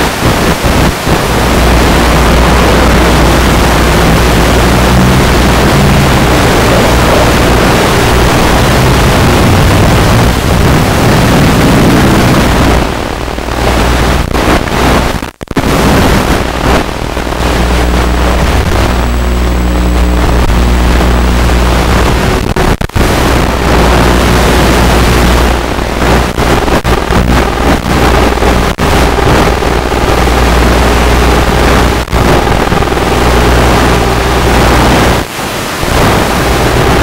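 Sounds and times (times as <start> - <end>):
wind rushing: 0.4 - 12.9.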